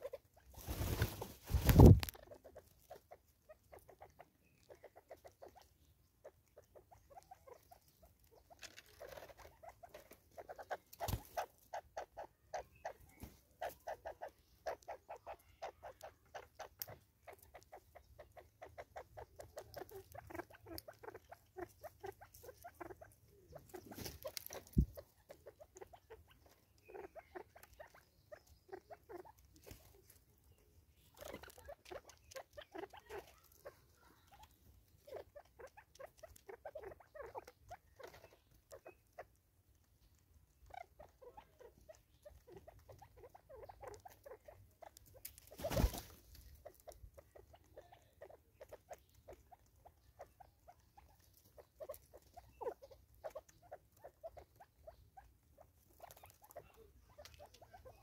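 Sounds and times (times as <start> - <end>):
beaks pecking on wood: 0.0 - 58.0
rustling bursts: 0.5 - 2.2.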